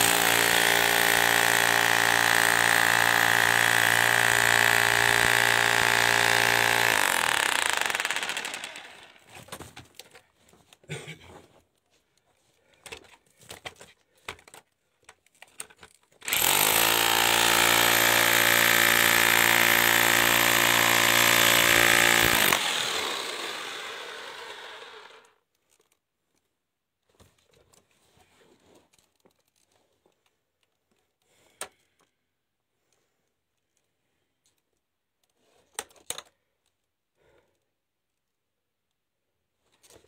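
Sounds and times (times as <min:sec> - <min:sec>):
jackhammer breaking rock: 0:00.0 - 0:09.3, 0:16.2 - 0:25.0.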